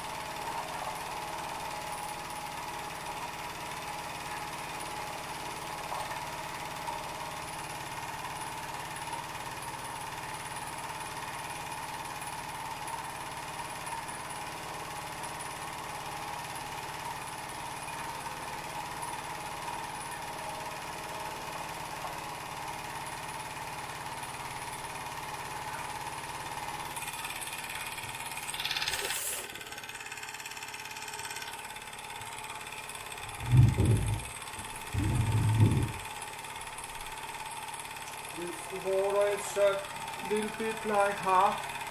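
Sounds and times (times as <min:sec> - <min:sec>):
toy steam engine puffing and clattering: 0:26.9 - 0:41.6.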